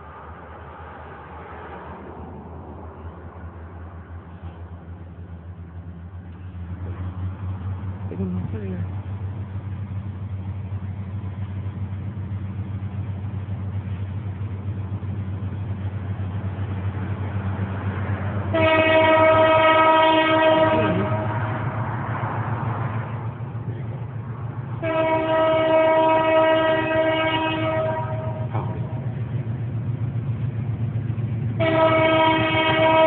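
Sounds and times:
low engine drone: 0.0s - 33.0s
locomotive air horn blasts: 18.5s - 21.6s, 24.8s - 28.8s, 31.6s - 33.0s.

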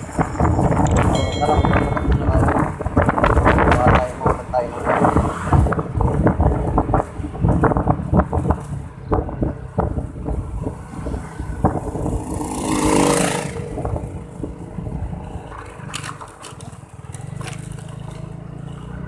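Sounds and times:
wind buffeting microphone: 0.0s - 16.0s
scooter engine running: 16.0s - 19.0s.

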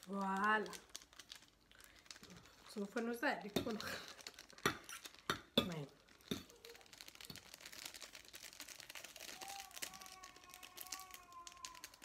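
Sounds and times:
plastic sachet crinkling: 0.0s - 12.0s.

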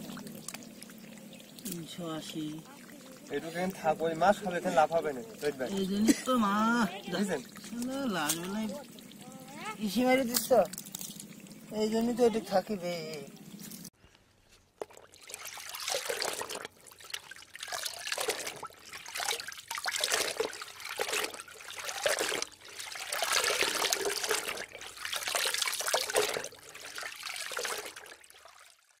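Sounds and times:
water splashing and trickling: 0.0s - 14.0s, 14.7s - 29.0s.

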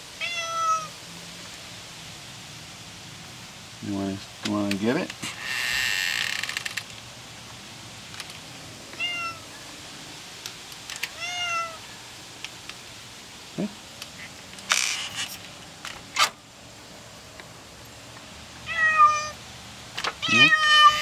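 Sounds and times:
cat meowing: 0.2s - 1.0s, 9.0s - 9.5s, 11.1s - 11.8s, 18.6s - 19.4s, 20.2s - 21.0s.

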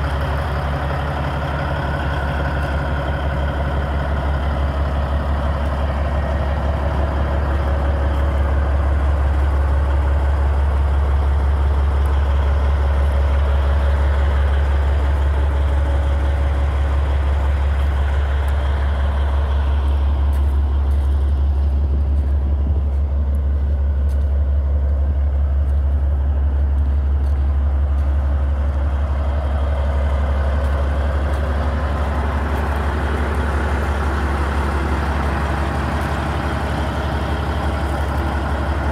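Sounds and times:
diesel engine idling: 0.0s - 38.9s.

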